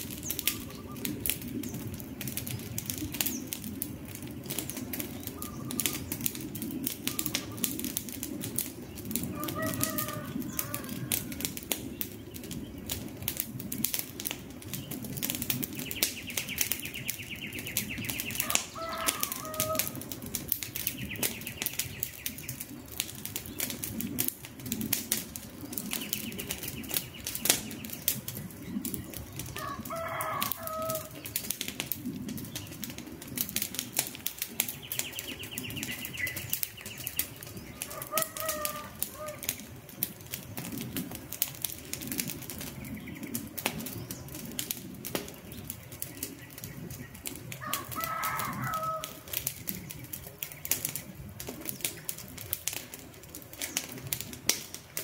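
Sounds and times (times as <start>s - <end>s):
campfire crackling and popping: 0.0s - 55.0s
bird calling: 0.2s - 1.9s, 4.8s - 7.8s, 9.3s - 11.4s, 15.7s - 20.0s, 34.6s - 39.7s.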